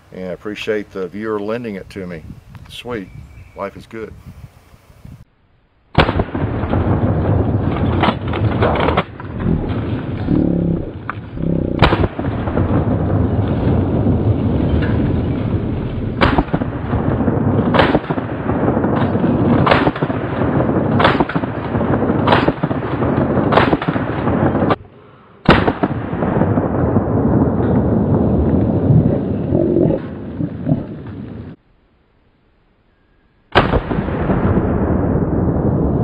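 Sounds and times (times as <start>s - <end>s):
shotgun firing: 5.9s - 10.1s, 11.7s - 13.1s, 16.1s - 24.8s, 25.4s - 26.6s, 33.5s - 34.9s
gunshot echo: 5.9s - 24.8s, 25.4s - 27.9s, 33.5s - 35.3s.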